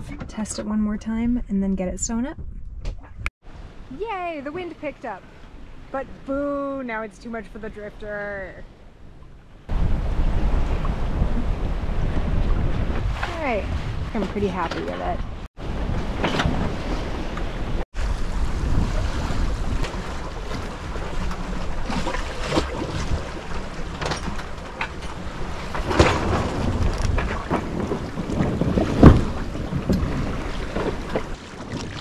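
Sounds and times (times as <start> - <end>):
wind buffeting microphone: 0.0 - 32.0
water rushing along hull: 3.4 - 32.0.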